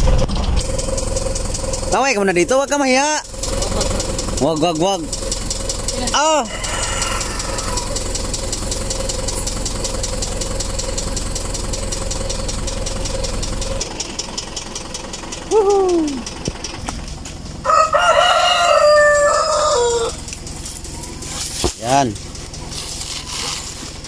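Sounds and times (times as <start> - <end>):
vehicle engine idling: 0.0 - 24.0
rooster crowing: 6.2 - 8.2, 17.6 - 20.3.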